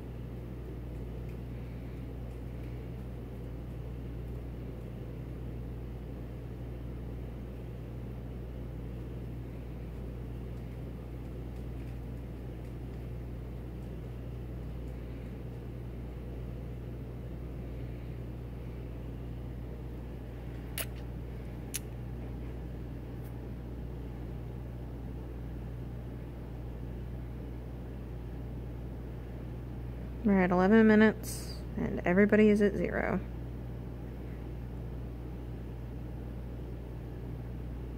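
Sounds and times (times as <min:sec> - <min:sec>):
low mechanical hum with hiss: 0:00.0 - 0:37.9
sharp click: 0:20.8 - 0:21.0.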